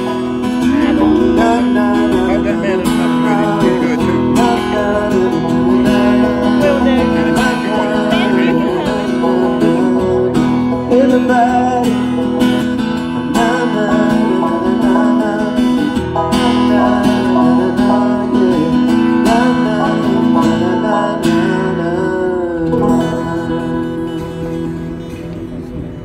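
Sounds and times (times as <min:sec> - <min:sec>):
steady low drone: 0:00.0 - 0:13.6
banjo and acoustic guitar: 0:00.0 - 0:26.0.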